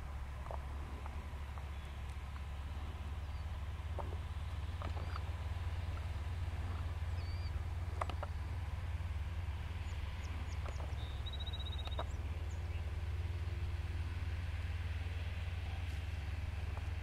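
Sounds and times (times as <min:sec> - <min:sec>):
low wind rumble on microphone: 0:00.0 - 0:17.0
bird chirps: 0:07.0 - 0:08.4, 0:09.8 - 0:12.9
bird rapid trill: 0:10.9 - 0:12.2.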